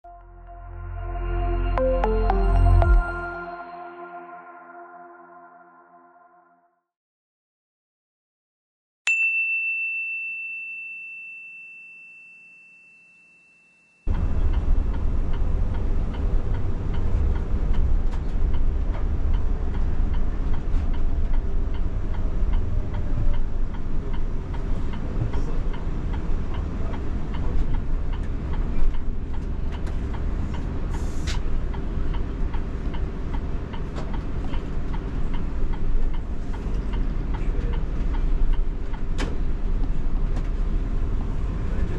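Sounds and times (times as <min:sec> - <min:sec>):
chime ringing: 0:00.1 - 0:06.4
bus engine and road rumble: 0:14.1 - 0:41.9.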